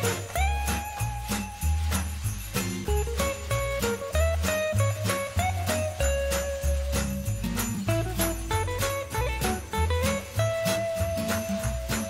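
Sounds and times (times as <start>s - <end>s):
christmas song: 0.0s - 12.0s
sleigh bells jingling: 0.0s - 12.0s.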